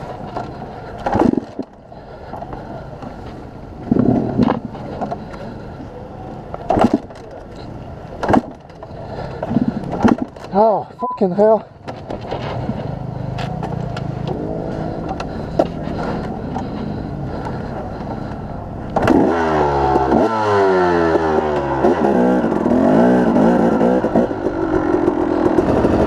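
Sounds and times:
dirt bike engine revving: 0:12.4 - 0:26.0.

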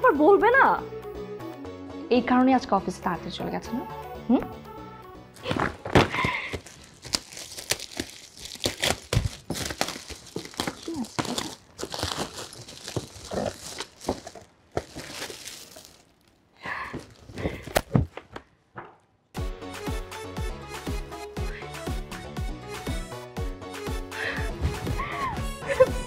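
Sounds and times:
plastic packaging crinkling and tearing: 0:05.4 - 0:17.9.

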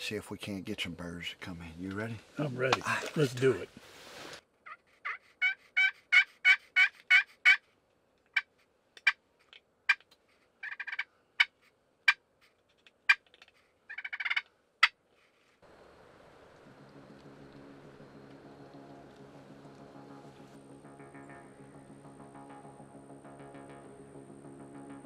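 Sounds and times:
turkey call clucks: 0:04.6 - 0:07.7, 0:08.3 - 0:15.0
turkey call yelps: 0:04.6 - 0:07.7, 0:10.6 - 0:11.5, 0:13.9 - 0:14.5.

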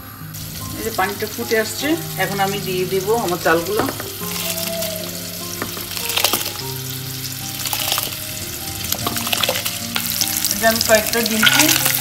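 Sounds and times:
water boiling in a pot: 0:00.0 - 0:12.0
rice splashing into water: 0:05.8 - 0:10.4.

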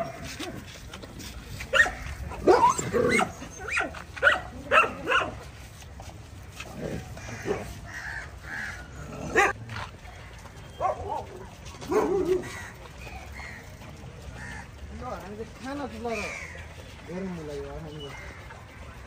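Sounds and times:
dogs barking and yelping: 0:00.0 - 0:00.8, 0:01.6 - 0:05.5, 0:07.0 - 0:13.7.

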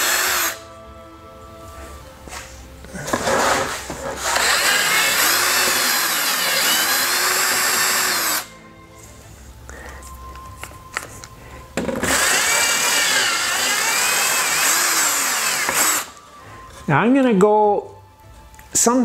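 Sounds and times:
cordless drill boring through plastic pipe: 0:00.0 - 0:00.6, 0:04.2 - 0:08.5, 0:12.0 - 0:16.2.

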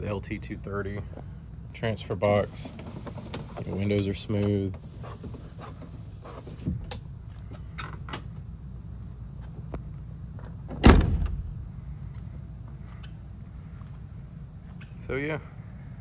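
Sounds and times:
car door slamming: 0:10.7 - 0:11.5.

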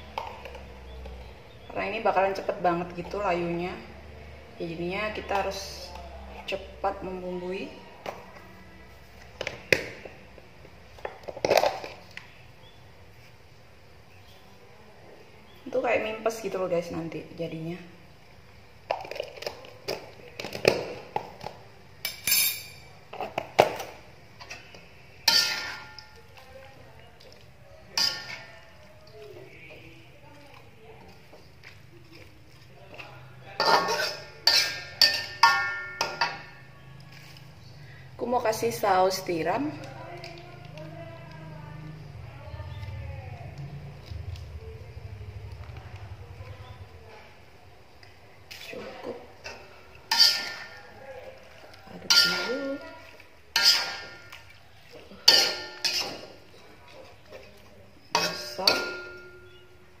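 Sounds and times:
metal spatula clanging on wok: 0:22.0 - 0:22.9, 0:25.2 - 0:26.2, 0:27.9 - 0:28.6, 0:33.6 - 0:36.6, 0:49.4 - 0:50.9, 0:52.0 - 0:52.8, 0:53.5 - 0:54.5, 0:55.2 - 0:56.5, 0:58.1 - 0:59.8.

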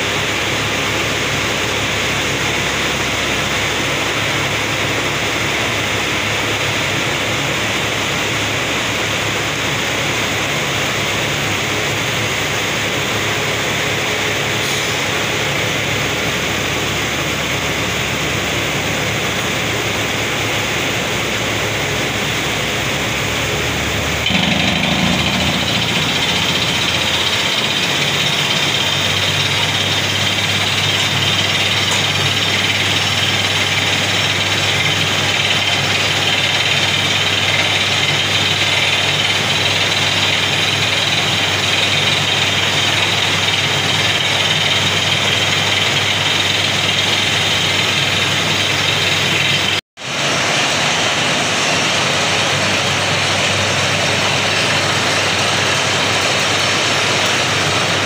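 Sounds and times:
drilling machine running: 0:13.0 - 0:58.0.

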